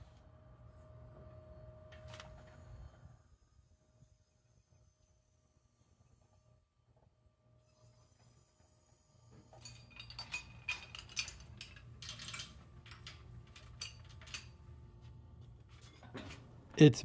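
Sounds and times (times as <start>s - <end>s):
metal chain and hook clinking: 9.5s - 14.7s.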